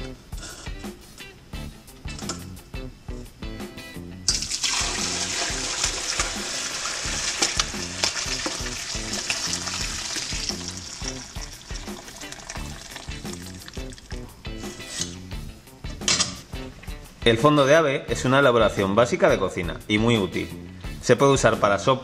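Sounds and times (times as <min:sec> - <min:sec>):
stock pouring through strainer: 0:04.3 - 0:15.1.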